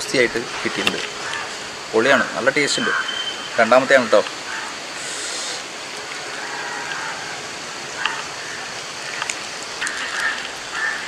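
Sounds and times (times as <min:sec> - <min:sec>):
rushing hiss of outdoor noise: 0:00.0 - 0:11.0
faint clicks: 0:08.0 - 0:08.3, 0:09.1 - 0:10.6.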